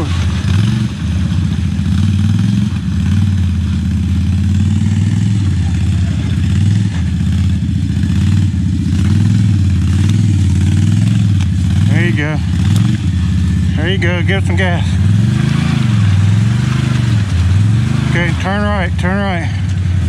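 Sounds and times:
quad engine running: 0.0s - 20.0s.

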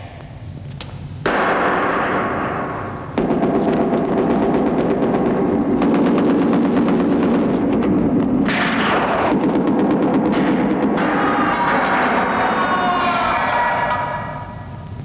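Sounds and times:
rapid gunfire crackling: 1.2s - 13.0s
explosion-like burst: 1.2s - 14.6s.

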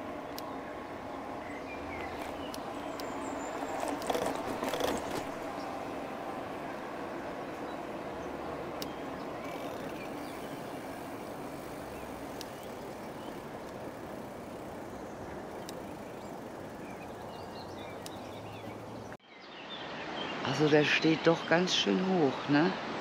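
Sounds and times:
tyres rolling: 1.2s - 19.1s
faint clicks: 8.7s - 18.8s.

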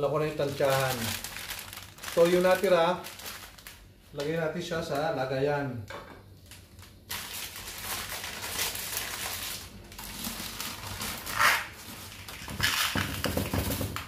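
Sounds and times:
plastic packet crinkling: 0.0s - 3.9s, 6.4s - 13.1s.

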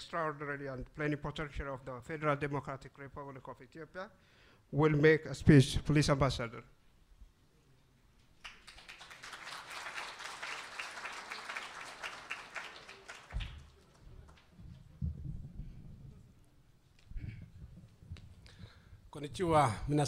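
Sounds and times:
audience applauding: 8.4s - 14.6s.

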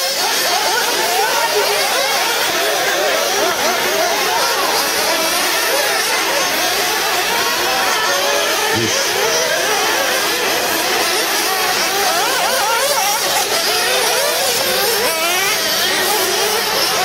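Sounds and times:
toy car motors whining: 0.0s - 17.0s.

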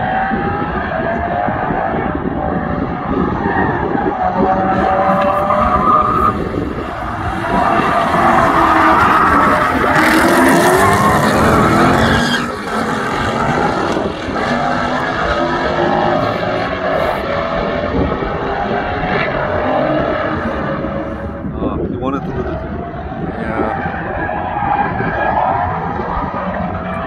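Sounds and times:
race car engine accelerating: 0.0s - 21.5s
second car engine: 4.0s - 27.0s.

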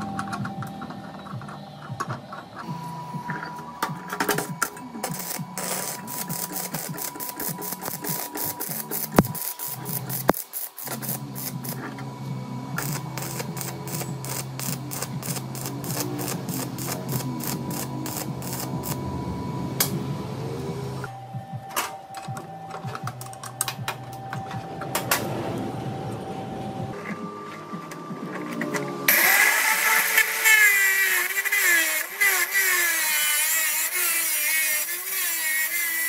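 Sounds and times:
electrical hum: 0.0s - 33.0s
arc welder crackling: 4.4s - 12.0s, 12.7s - 20.1s, 28.3s - 36.0s.

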